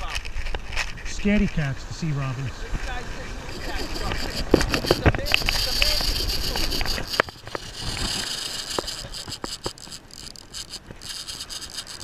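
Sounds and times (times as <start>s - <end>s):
wind buffeting microphone: 2.6s - 12.0s
fishing reel clicks: 3.5s - 12.0s.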